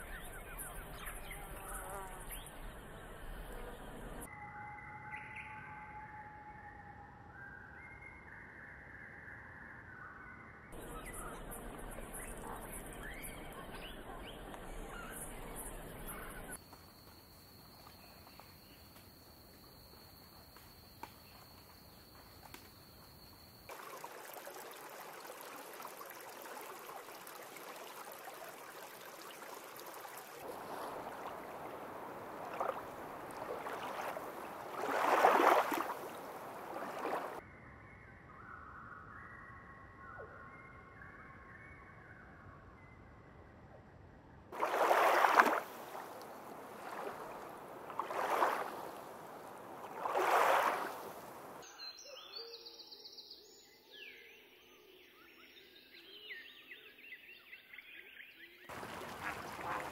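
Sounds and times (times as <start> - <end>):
birds calling: 10.8 - 16.6, 29.5 - 37.4, 58.7 - 59.9
rushing water-like noise: 23.7 - 37.4, 44.6 - 51.6, 58.7 - 59.9.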